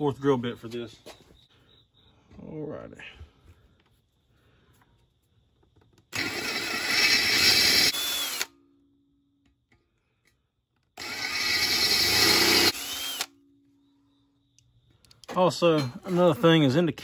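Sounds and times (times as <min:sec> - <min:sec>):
power drill drilling metal: 0:06.1 - 0:08.6, 0:11.0 - 0:13.3.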